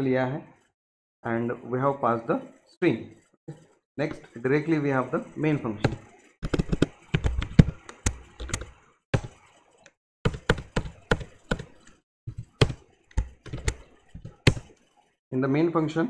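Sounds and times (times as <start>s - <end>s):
typing on computer keyboard: 5.8s - 14.9s.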